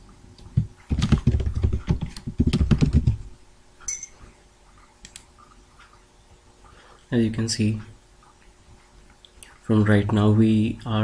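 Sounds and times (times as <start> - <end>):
keyboard typing: 0.9 - 3.2.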